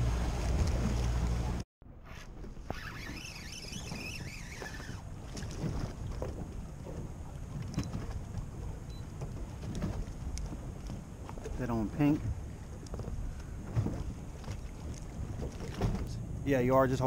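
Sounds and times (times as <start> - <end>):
water around a boat: 0.0 - 17.0
wavering high whine: 2.7 - 5.1, 16.1 - 17.0.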